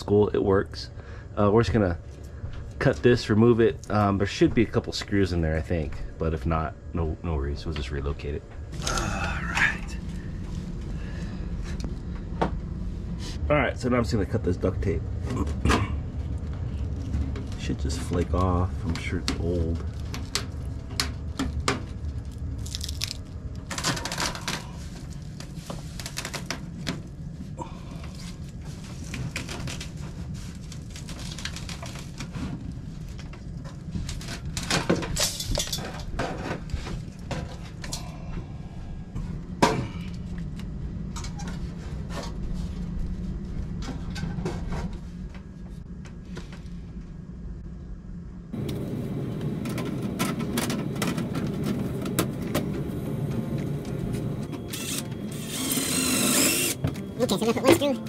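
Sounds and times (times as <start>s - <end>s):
steady low hum: 0.0s - 58.0s
tape scraping and crackling: 19.0s - 27.1s, 28.0s - 34.7s, 54.7s - 57.7s.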